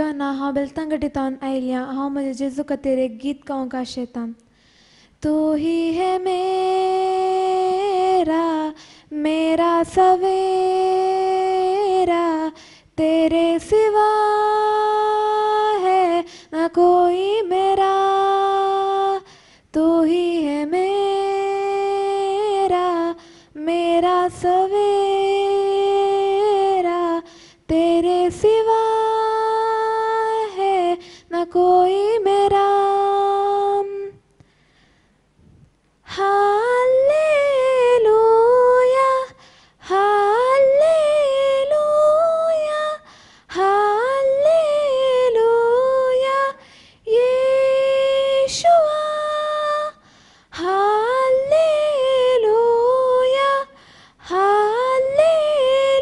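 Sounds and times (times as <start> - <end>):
girl singing unaccompanied: 0.0 - 4.4, 5.2 - 34.3, 36.0 - 56.0
short breaths: 4.5 - 5.2, 8.8 - 9.1, 12.6 - 12.9, 19.2 - 19.7, 27.3 - 27.6, 34.4 - 35.7, 39.4 - 39.8, 43.0 - 43.5, 46.6 - 47.0, 50.0 - 50.5, 53.7 - 54.2.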